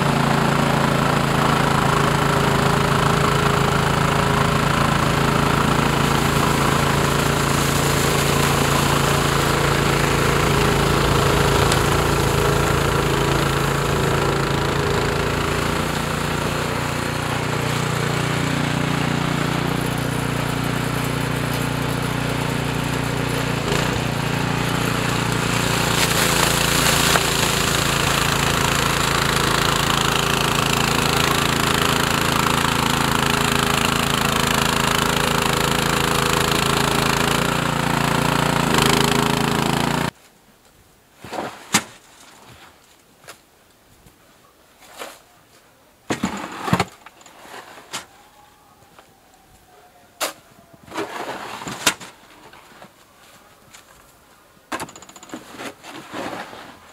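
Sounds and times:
snowblower engine running: 0.0s - 40.2s.

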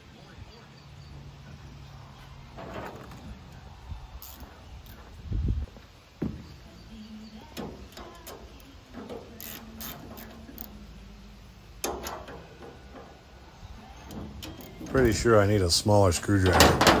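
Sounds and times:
metal clank: 11.8s - 13.3s, 16.4s - 17.0s.

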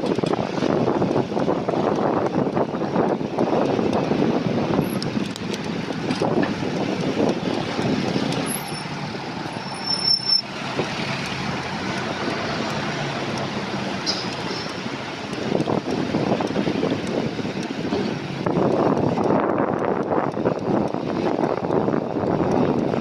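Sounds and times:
road traffic noise: 0.0s - 23.0s.

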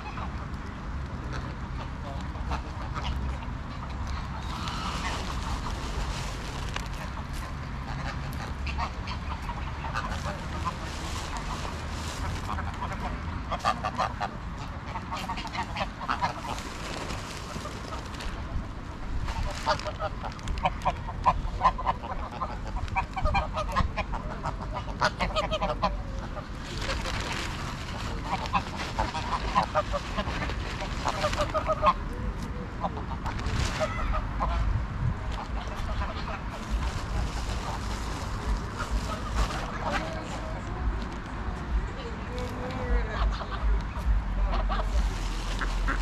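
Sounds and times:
geese honking: 2.4s - 5.7s, 20.8s - 26.4s.

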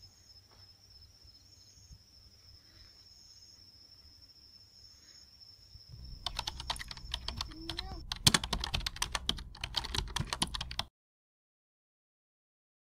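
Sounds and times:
insects trilling: 0.0s - 10.8s
low rumble: 5.9s - 10.8s
rapid sharp clicks: 6.0s - 10.9s.

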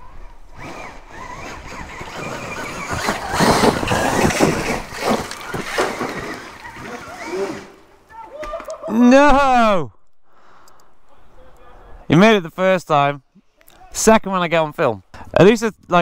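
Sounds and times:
dirt bike engine revving: 0.6s - 7.9s.

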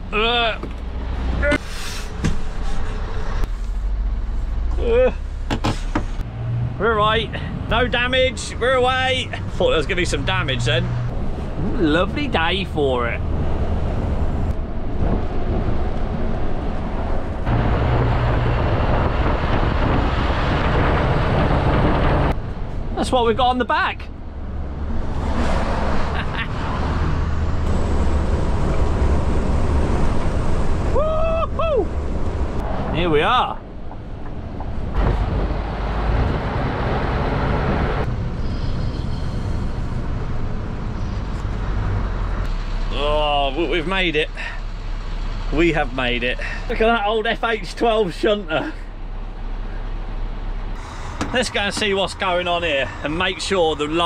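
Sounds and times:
road noise: 0.0s - 54.0s
truck engine rumble: 0.0s - 54.0s
wind rushing over microphone: 11.0s - 23.0s, 24.2s - 42.5s.

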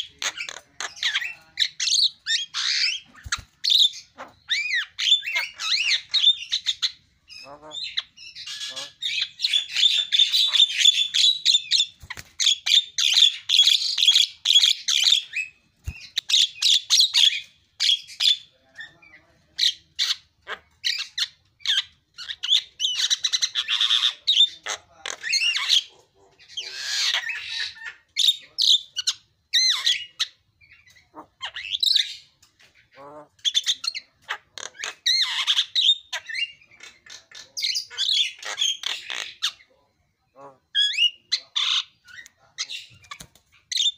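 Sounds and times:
bird chattering and whistling: 0.0s - 32.3s, 33.0s - 39.8s, 40.7s - 43.9s.

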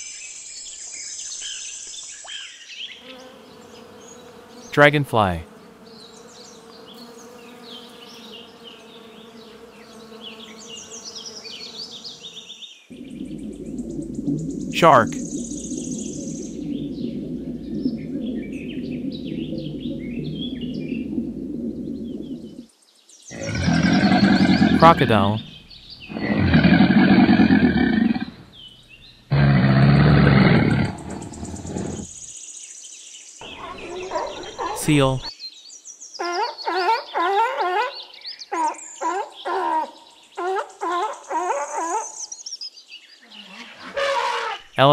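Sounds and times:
insect buzzing hum: 2.8s - 32.6s, 33.4s - 35.3s
crocodile growling: 12.9s - 22.6s, 23.3s - 28.6s, 29.3s - 32.1s, 33.4s - 35.3s.

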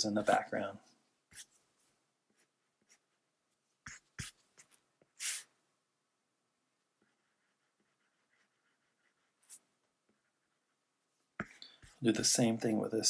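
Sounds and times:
stylus scratching tablet screen: 0.0s - 0.6s, 3.8s - 5.5s, 7.0s - 12.3s.

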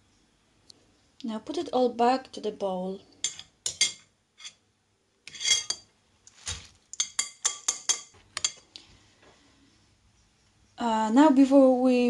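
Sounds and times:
metal spoon clinking on sieve and bowl: 3.2s - 4.6s, 5.3s - 5.8s, 7.0s - 8.6s.

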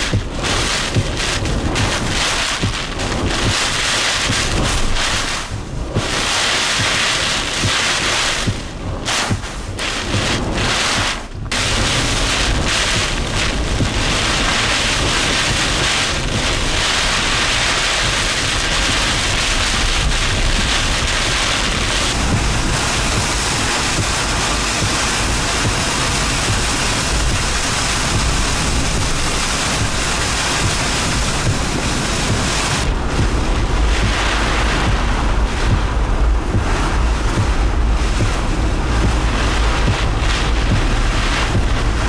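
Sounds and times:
wind and rain rushing: 0.0s - 42.0s
wind buffeting microphone: 0.0s - 42.0s.

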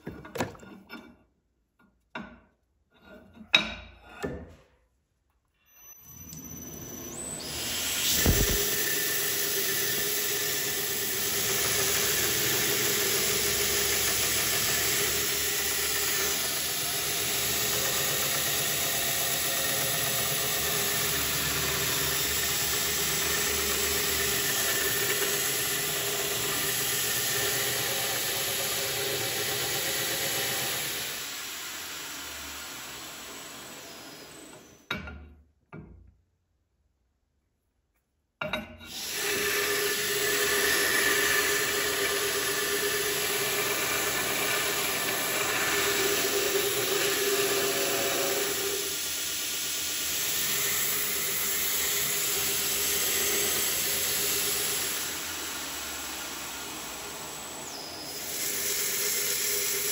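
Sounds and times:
belt grinder grinding metal: 6.0s - 34.9s, 38.9s - 59.9s.

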